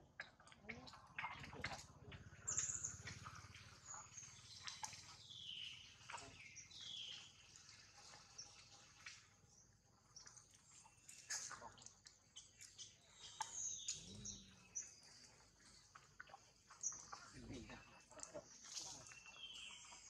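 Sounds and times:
faint birds chirping: 0:00.0 - 0:20.0.

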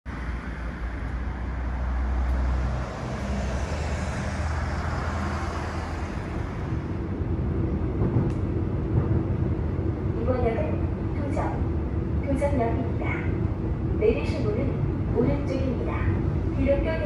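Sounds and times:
passing vehicle: 0:00.1 - 0:08.7
electric train running hum: 0:00.1 - 0:17.0
street traffic noise: 0:00.1 - 0:17.0.

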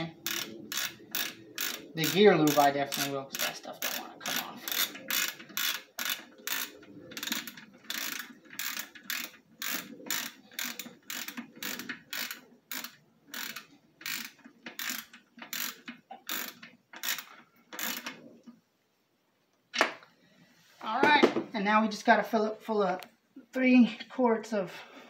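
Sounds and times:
ratchet wrench clicking: 0:00.0 - 0:18.2.

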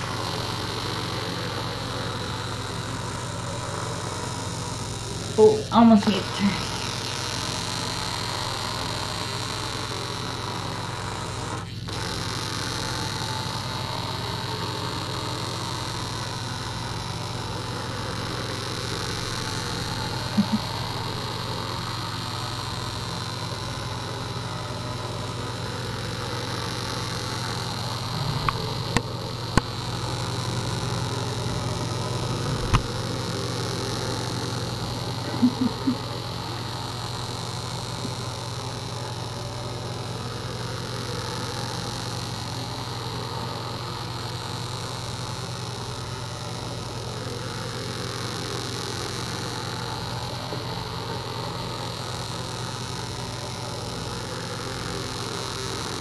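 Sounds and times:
vibrating toy buzzing: 0:00.0 - 0:56.0.

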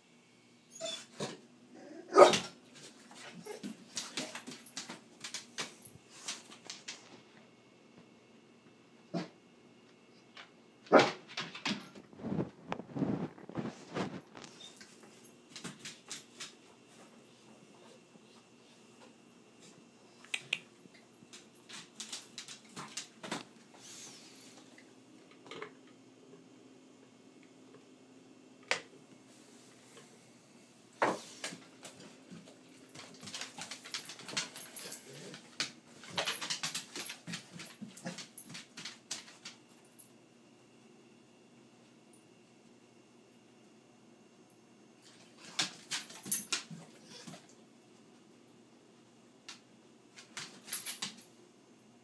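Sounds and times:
dog barking: 0:02.1 - 0:02.5
dog claws clicking on tile floor: 0:02.8 - 0:07.2, 0:11.3 - 0:17.1, 0:20.2 - 0:23.5, 0:31.2 - 0:40.1, 0:45.0 - 0:47.6, 0:49.5 - 0:51.3.

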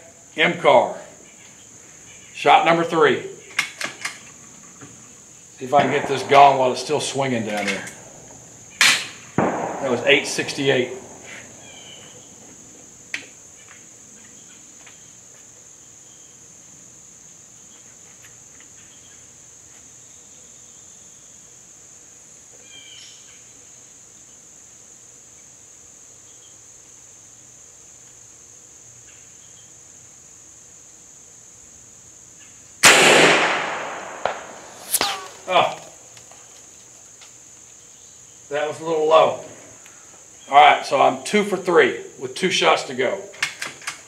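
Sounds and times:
high hiss: 0:00.0 - 0:17.7, 0:19.0 - 0:44.0
air rifle shot: 0:05.7 - 0:07.0, 0:08.8 - 0:11.6, 0:32.8 - 0:35.5.

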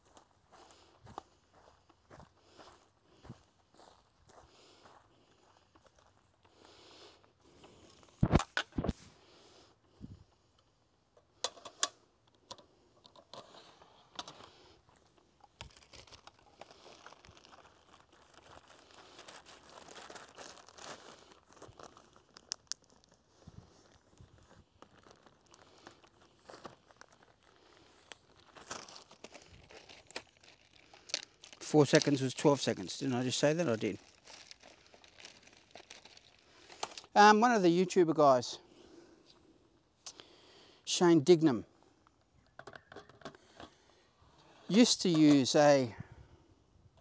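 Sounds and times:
plastic and cloth crinkling: 0:14.2 - 0:37.2.

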